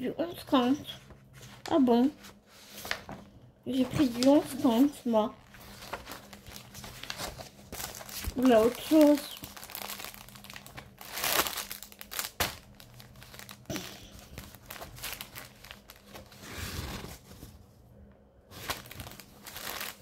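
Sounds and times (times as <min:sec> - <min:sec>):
packaging crinkling: 0:05.4 - 0:17.3, 0:18.5 - 0:20.0.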